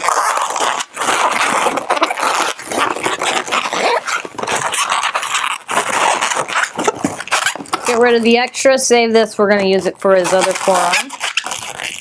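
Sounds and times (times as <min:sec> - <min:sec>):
balloon squeaking and rubbing: 0:00.0 - 0:12.0.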